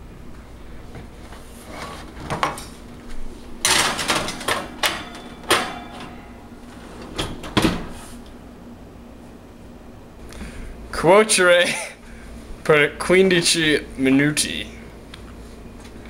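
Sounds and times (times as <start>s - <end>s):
baking sheet rattling and scraping: 1.6s - 2.8s, 3.6s - 8.2s
metal baking sheet clanking: 3.6s - 7.5s
oven door knocking shut: 3.7s - 6.2s.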